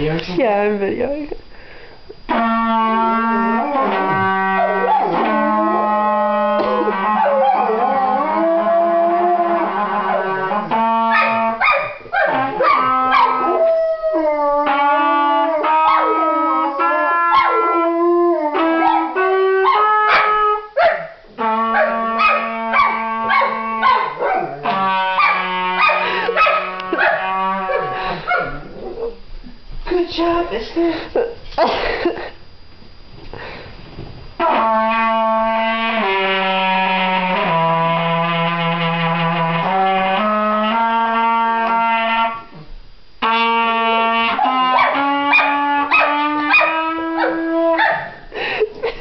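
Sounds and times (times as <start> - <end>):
trumpet long notes: 2.3 - 29.3, 34.4 - 48.5
dog howling: 3.0 - 29.2, 44.2 - 48.2.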